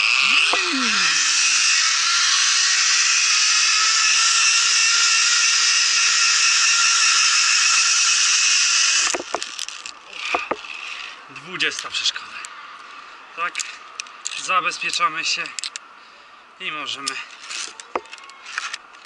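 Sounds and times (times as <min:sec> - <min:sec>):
zip-line pulley whirring on cable: 0:00.0 - 0:11.2, 0:17.4 - 0:18.8
knocks and clicks: 0:09.1 - 0:09.6, 0:10.3 - 0:10.7.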